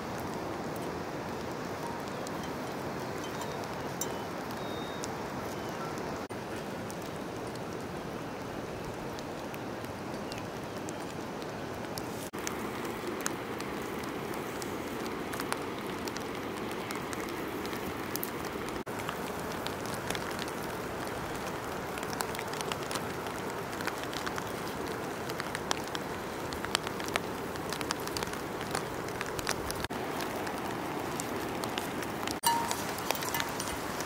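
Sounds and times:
raindrops ticking: 0.0s - 11.2s, 11.9s - 34.0s
rain on grass and leaves: 0.0s - 34.0s.

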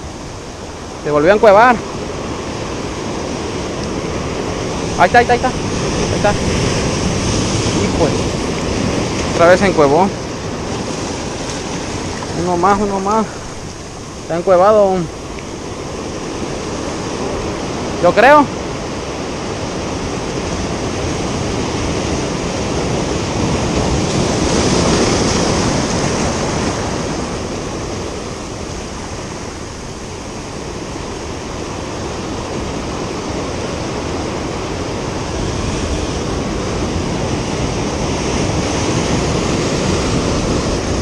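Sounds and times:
surf breaking over rocks: 0.0s - 41.0s.

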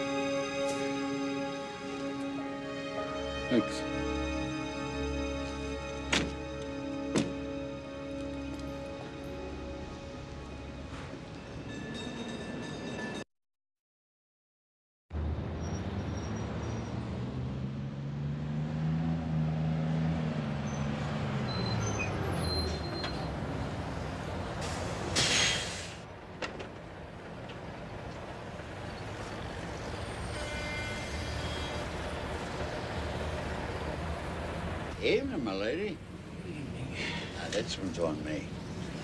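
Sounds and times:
bus engine hum: 0.0s - 11.8s, 15.2s - 39.0s
bus idling: 0.0s - 12.7s, 20.6s - 39.0s
air brakes hissing: 24.6s - 26.1s.

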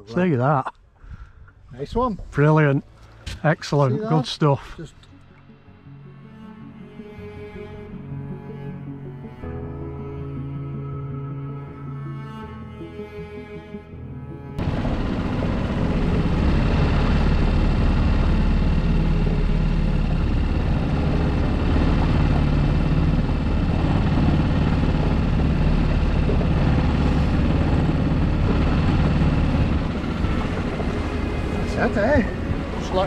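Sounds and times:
wind: 0.0s - 5.9s, 14.6s - 33.0s
outboard motor drone: 13.9s - 33.0s.

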